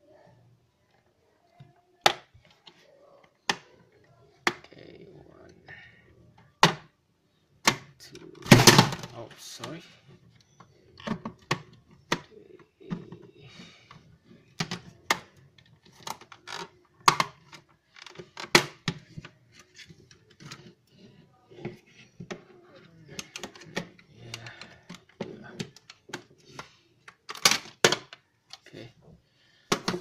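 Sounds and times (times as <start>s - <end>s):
plastic housing knocking and rattling: 29.7s - 30.0s.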